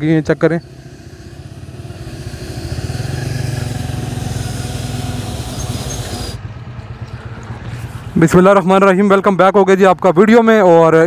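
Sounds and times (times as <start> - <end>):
vehicle engine running: 0.0 - 9.3
hiss: 0.1 - 6.4.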